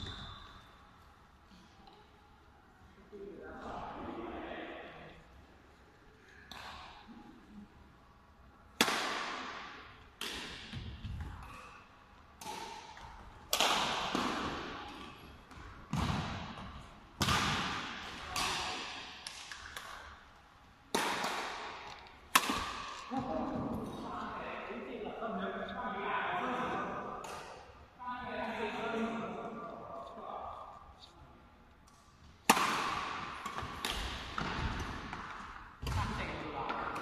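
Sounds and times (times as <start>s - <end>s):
rackets striking shuttlecock: 6.5s - 7.0s, 8.8s - 11.7s, 12.4s - 20.2s, 20.9s - 23.1s, 31.8s - 37.0s.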